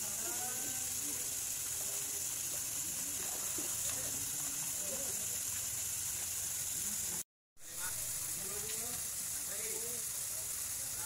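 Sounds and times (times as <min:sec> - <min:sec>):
distant people talking: 0:00.0 - 0:05.8
steady high hiss: 0:00.0 - 0:11.0.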